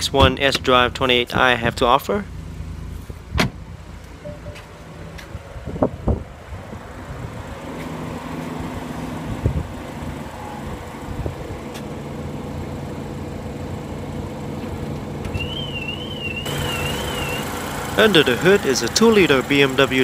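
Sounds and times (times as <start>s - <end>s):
car engine idling: 0.0s - 20.0s
high warbling tone: 4.2s - 5.3s.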